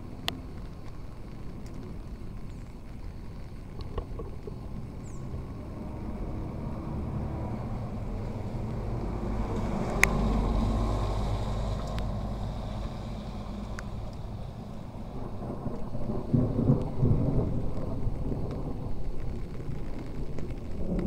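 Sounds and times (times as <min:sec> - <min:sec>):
vehicle passing: 0:05.2 - 0:17.4.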